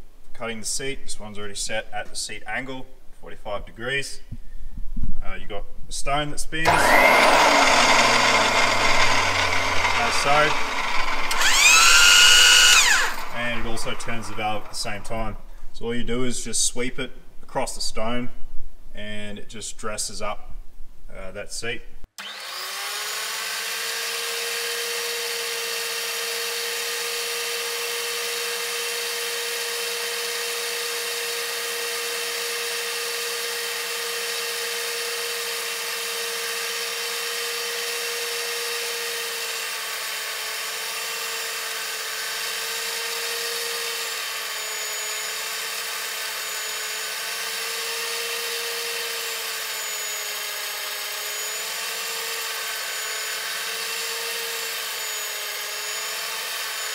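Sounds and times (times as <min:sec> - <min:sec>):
grinding stone motor whine: 0:06.6 - 0:15.4, 0:22.2 - 0:24.8.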